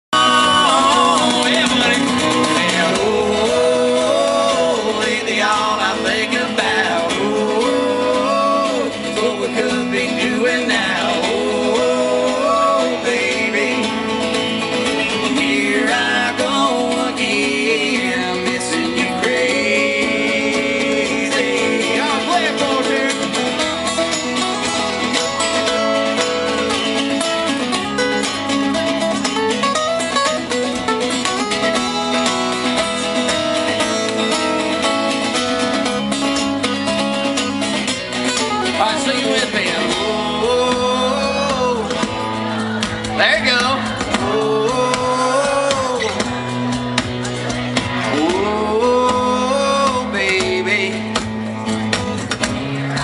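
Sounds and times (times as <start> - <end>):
man singing: 0.0 - 26.2, 37.3 - 47.0, 47.6 - 53.0
acoustic guitars strumming: 0.0 - 53.0.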